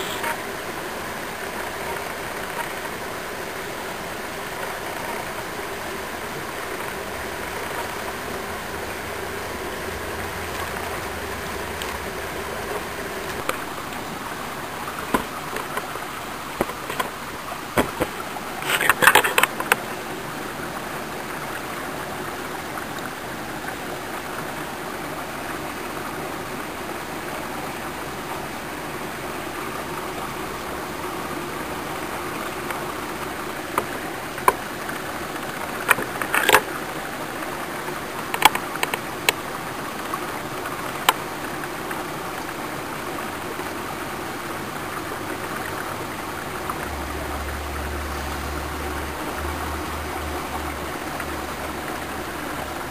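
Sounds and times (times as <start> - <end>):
creek water running over stones: 0.0 - 52.9
small clicks and knocks: 35.5 - 36.7, 38.3 - 39.4.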